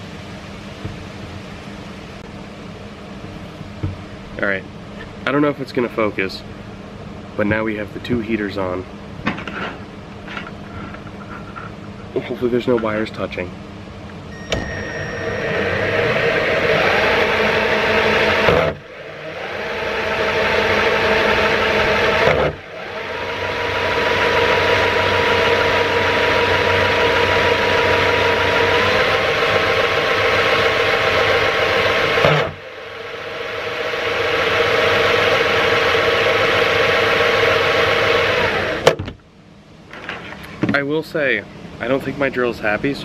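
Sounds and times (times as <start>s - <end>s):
cordless drill labouring: 14.4s - 38.9s.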